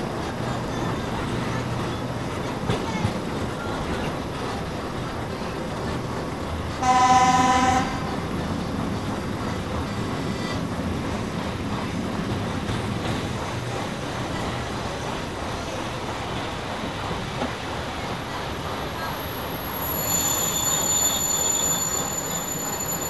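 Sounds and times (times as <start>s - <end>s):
train running: 0.0s - 23.0s
train horn blast: 6.8s - 8.3s.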